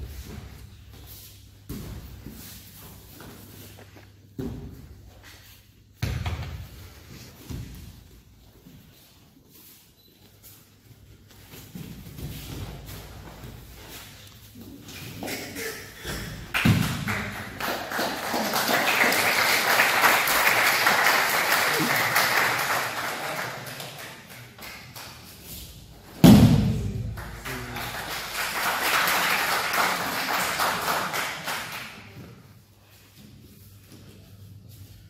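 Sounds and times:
spectators applauding: 16.5 - 24.7, 27.2 - 32.0.

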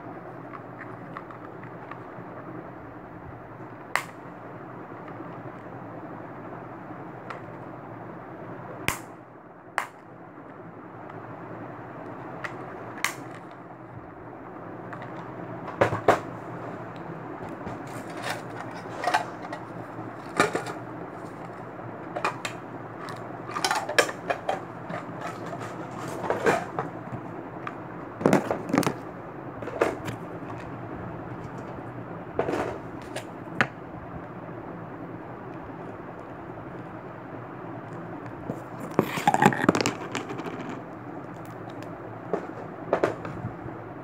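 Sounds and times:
plastic cases clicking and knocking: 28.2 - 29.0, 38.5 - 40.8.

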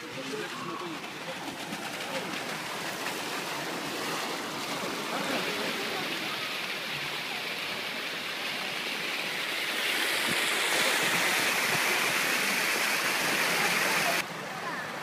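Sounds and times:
water rushing down slides: 0.0 - 15.0.

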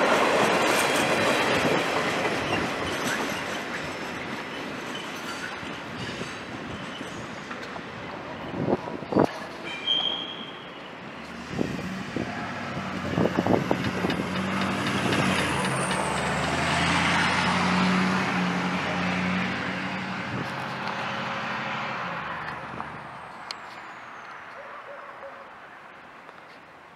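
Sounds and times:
pickup truck engine passing: 11.4 - 23.1.

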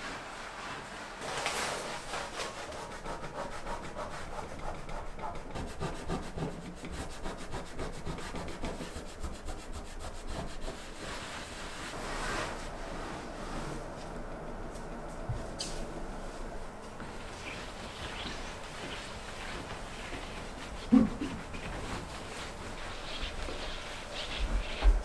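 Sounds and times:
cloth rubbing on wooden tabletop: 16.9 - 25.0.

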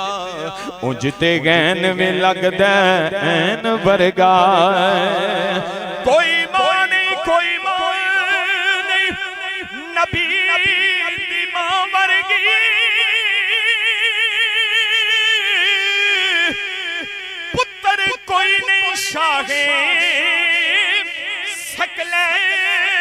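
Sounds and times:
man singing into a microphone: 0.0 - 23.0.

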